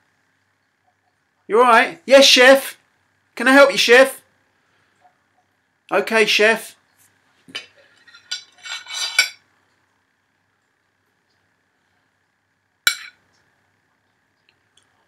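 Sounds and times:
metal spoon clinking on plate: 8.0 - 9.4, 12.9 - 13.2.

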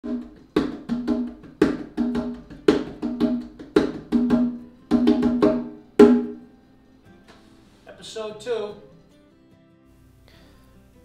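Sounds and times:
conga drum played by hand: 0.0 - 6.5.

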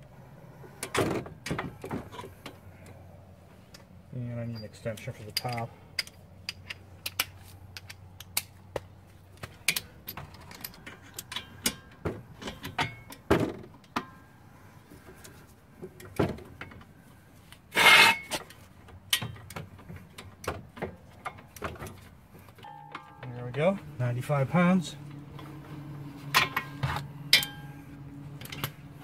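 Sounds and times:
steel socket tools clinking: 4.6 - 8.5.

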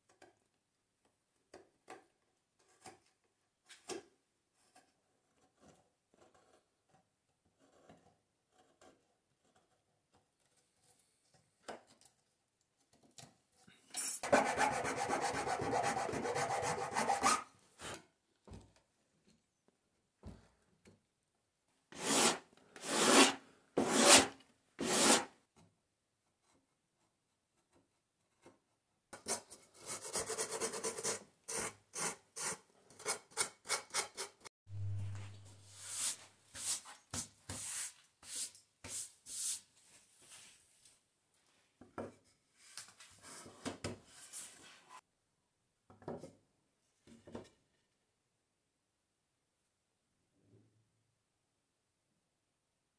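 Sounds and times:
gouge cutting wood: 22.0 - 25.3
rasping strokes on wood: 22.0 - 25.3.

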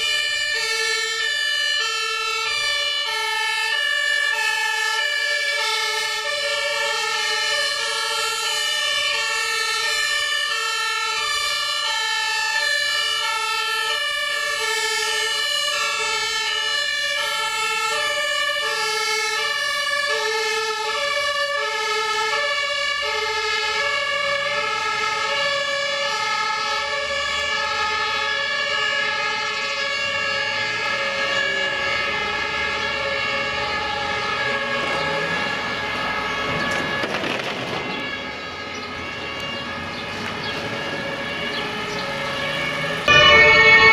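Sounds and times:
truck engine rumble: 0.0 - 43.9
two-tone fire engine sirens: 0.0 - 43.9.

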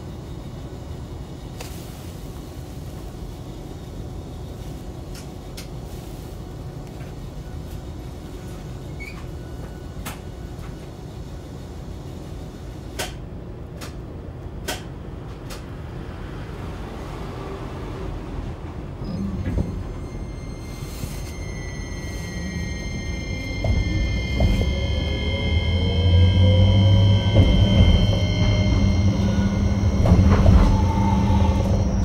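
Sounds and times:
tram wheels rumbling on rail: 0.0 - 32.0
low bump: 23.2 - 32.0.

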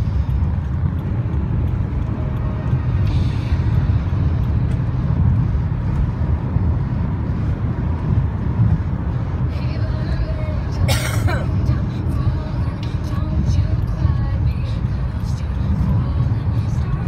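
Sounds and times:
car engine and tyres rumbling: 0.0 - 17.0.

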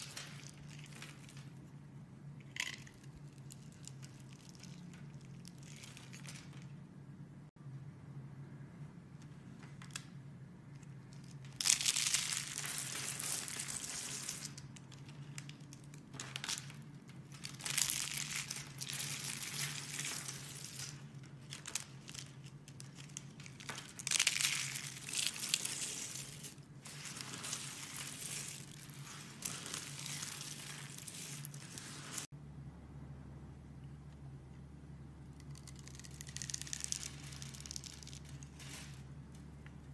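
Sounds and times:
soap curls crunching by hand: 11.1 - 32.3, 35.4 - 39.8
faint low hum: 14.6 - 39.9.

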